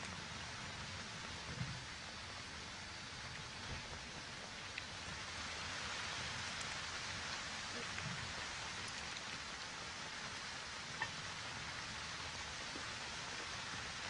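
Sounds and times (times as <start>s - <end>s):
outdoor background hiss: 0.0s - 14.0s
faint ticks: 3.2s - 5.2s, 6.2s - 6.9s, 7.7s - 9.7s, 10.9s - 14.0s.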